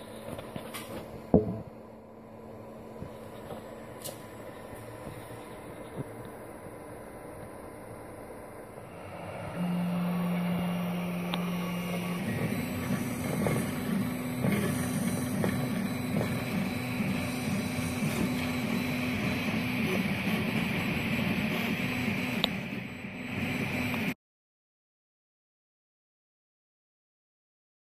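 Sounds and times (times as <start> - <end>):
stepper motors whining: 3.3 - 24.2.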